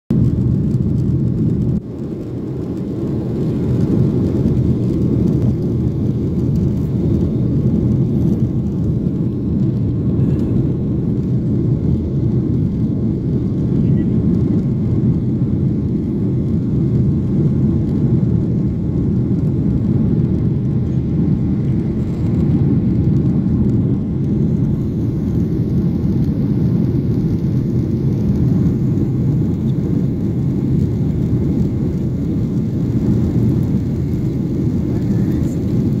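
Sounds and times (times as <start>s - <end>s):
jet airliner cabin drone: 0.1s - 36.0s.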